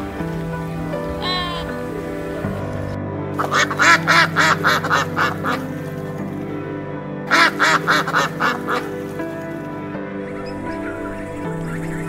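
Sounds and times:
background music: 0.0 - 12.0
duck quacking: 3.4 - 5.6, 7.3 - 8.9.

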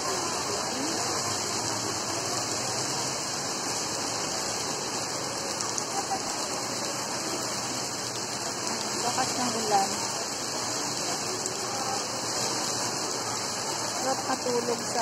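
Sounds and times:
heavy rain on paving: 0.0 - 15.0.

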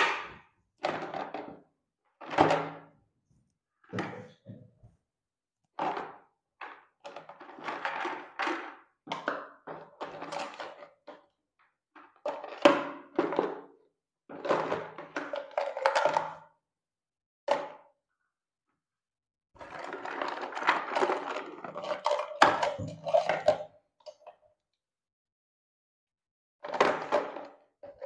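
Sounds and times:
plastic bottles clattering in basket: 0.0 - 1.6, 14.3 - 16.4, 19.6 - 23.6, 26.6 - 28.0.

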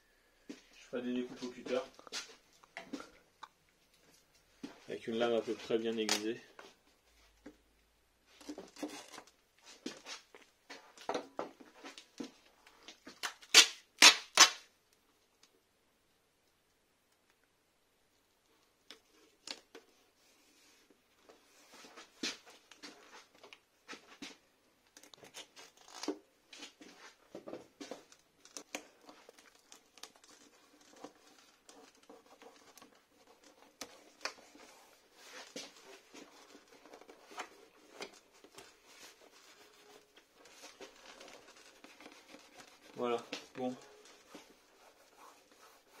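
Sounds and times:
adhesive tape crackling and tearing: 13.2 - 14.7, 25.0 - 26.2, 28.1 - 35.8.

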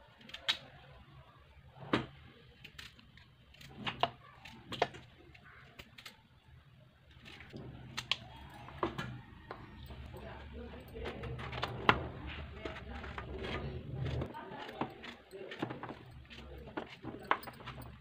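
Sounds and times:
knife cutting potato: 7.2 - 18.0.

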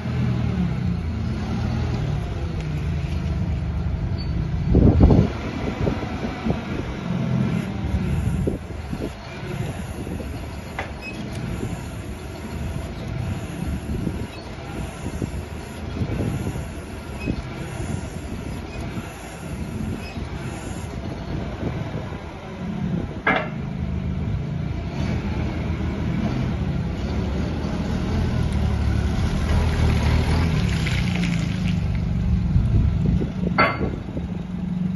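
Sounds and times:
forklift engine running: 0.0 - 34.9
sharp squeaks or clanks: 4.1 - 4.5, 8.9 - 15.2, 15.8 - 20.8.

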